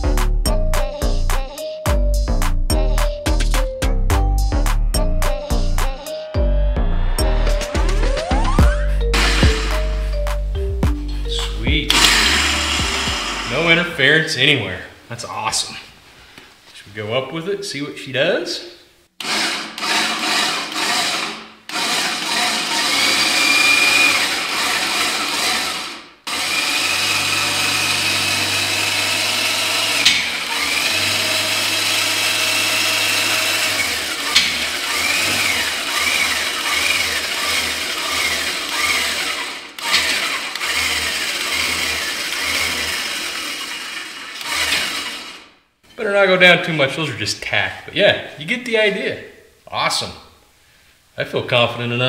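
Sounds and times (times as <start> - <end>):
cordless drill motor whine: 9.2 - 10.0, 11.9 - 13.7, 19.2 - 45.5.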